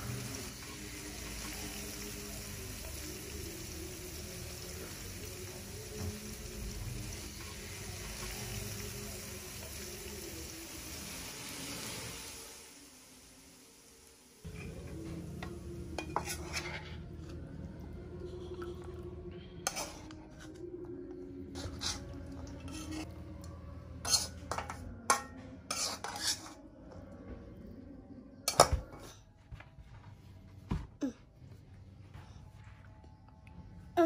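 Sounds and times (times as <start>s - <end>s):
spatula scraping metal wok: 16.0s - 17.3s, 19.6s - 20.4s, 21.5s - 23.1s, 24.0s - 26.6s.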